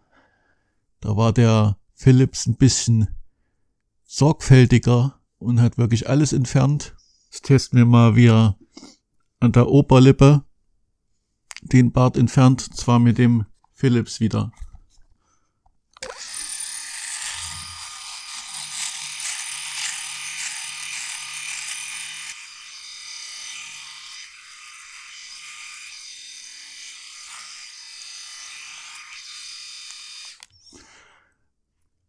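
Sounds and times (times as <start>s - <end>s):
electric shaver buzzing: 16.0s - 30.5s.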